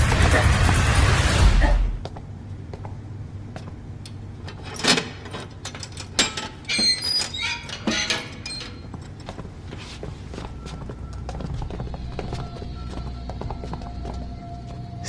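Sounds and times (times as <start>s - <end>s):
knocks and squeaks: 4.5s - 14.3s.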